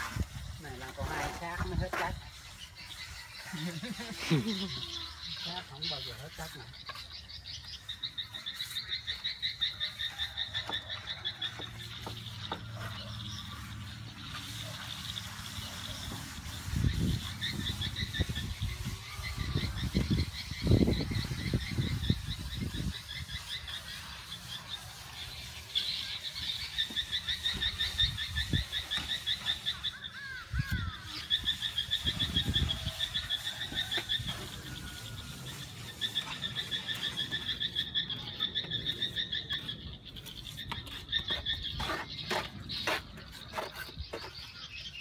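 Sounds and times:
trowels scraping wet cement: 0:00.0 - 0:45.0.

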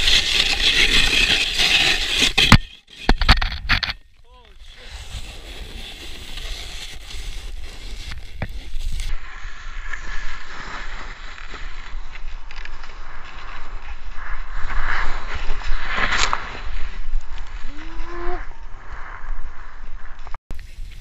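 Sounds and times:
wind rumbling on microphone: 0:02.3 - 0:21.0
snowboard scraping over snow: 0:04.3 - 0:21.0.

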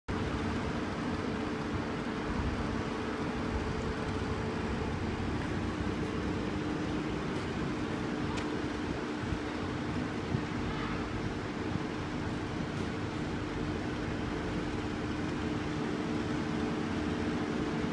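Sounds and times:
vehicle engine running: 0:00.1 - 0:17.9.

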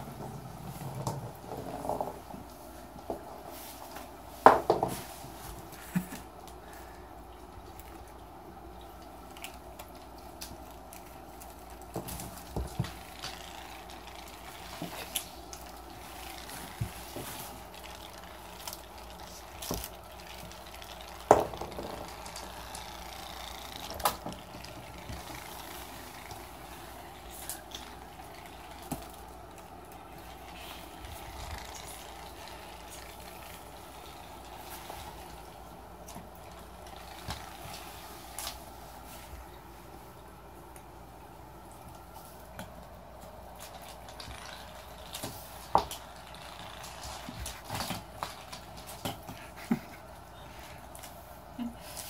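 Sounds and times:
steady room hum: 0:00.0 - 0:52.0
ball taps on laminate floor: 0:21.3 - 0:22.1.

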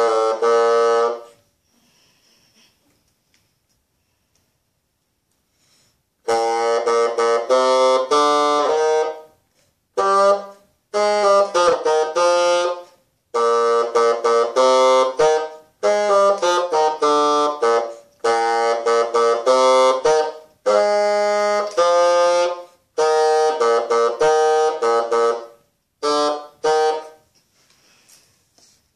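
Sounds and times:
solo bassoon melody: 0:00.0 - 0:01.4, 0:06.2 - 0:27.3.

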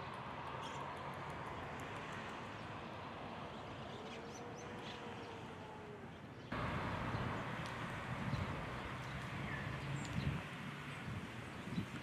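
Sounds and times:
birds foraging in dry leaves: 0:06.5 - 0:12.0.

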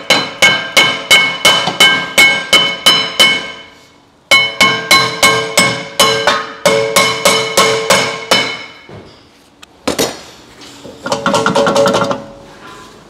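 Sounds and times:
hammer striking ringing brake rotor: 0:00.0 - 0:09.3.

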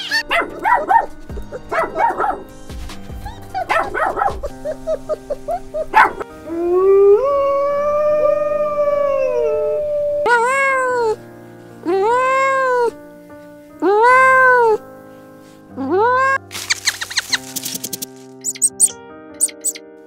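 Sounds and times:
background music: 0:00.0 - 0:20.0
dog howling: 0:03.3 - 0:11.2, 0:11.9 - 0:13.0, 0:13.8 - 0:14.8
short squealing calls: 0:16.5 - 0:19.8.

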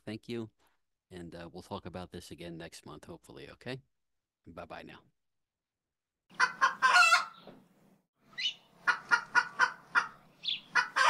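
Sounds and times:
rooster clucking: 0:06.3 - 0:07.4, 0:08.4 - 0:11.0
rooster crowing: 0:06.4 - 0:07.4.

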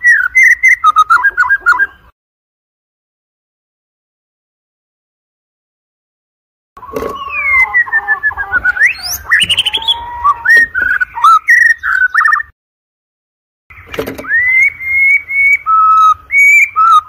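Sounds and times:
bird singing whistled trills: 0:00.0 - 0:02.1, 0:06.8 - 0:12.5, 0:13.7 - 0:17.0.

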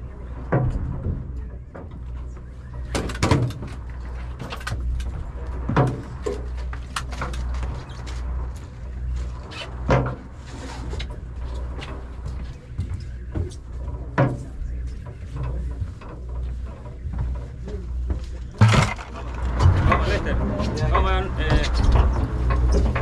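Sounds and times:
boat engine droning: 0:00.0 - 0:23.0.

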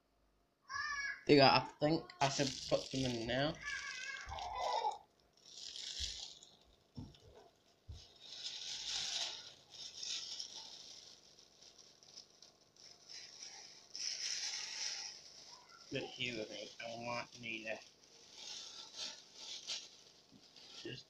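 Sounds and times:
plastic bag crinkling: 0:02.2 - 0:21.0.

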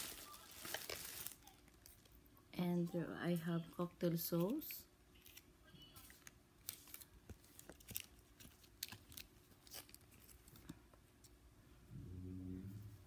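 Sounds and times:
plastic containers crinkling: 0:00.0 - 0:02.2, 0:06.0 - 0:10.9.

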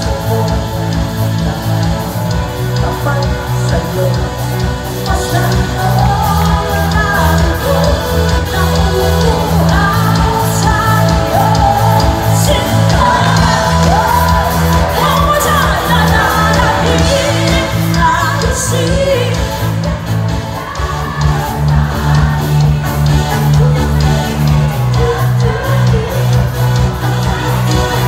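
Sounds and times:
live pop-rock band: 0:00.0 - 0:28.0
women singing: 0:00.0 - 0:28.0.

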